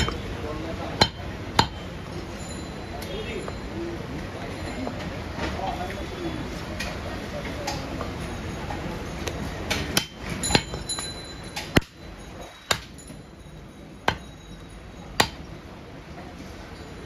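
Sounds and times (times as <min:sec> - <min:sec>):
knife chopping meat on wood: 0:01.0 - 0:01.8.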